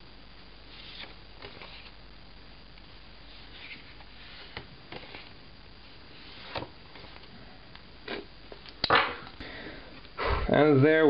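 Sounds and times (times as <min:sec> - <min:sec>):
postcards rustling: 0:00.7 - 0:02.0, 0:03.2 - 0:07.4.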